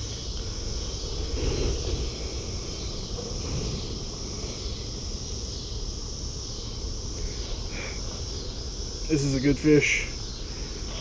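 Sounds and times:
wind rumbling on microphone: 0.0s - 6.2s
crickets chirping: 0.0s - 11.0s.

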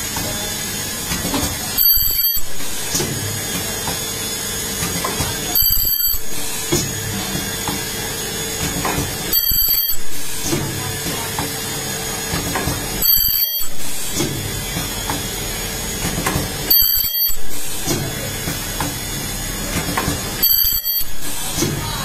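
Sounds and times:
machine noise: 0.0s - 22.0s
steady mechanical background: 0.0s - 22.0s
high-pitched welding squeal: 1.8s - 2.6s, 5.6s - 6.7s, 9.3s - 10.1s, 13.0s - 13.9s, 16.7s - 17.5s, 20.4s - 22.0s.

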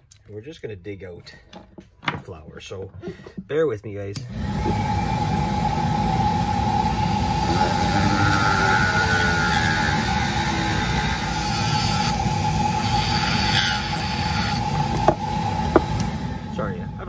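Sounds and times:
rotary tool motor whine: 4.3s - 16.8s
burr rasping into wood: 7.3s - 16.0s.

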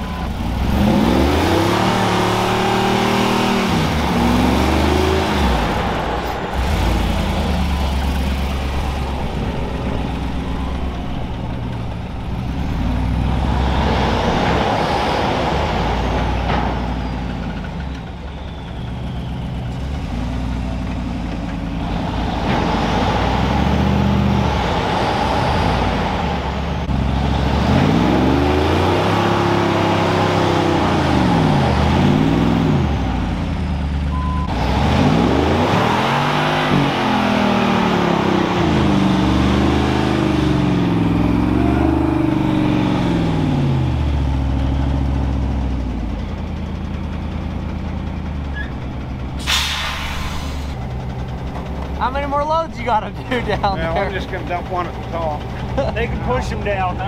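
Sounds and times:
truck engines under heavy load: 0.0s - 57.0s
air brakes hiss: 49.4s - 50.8s.

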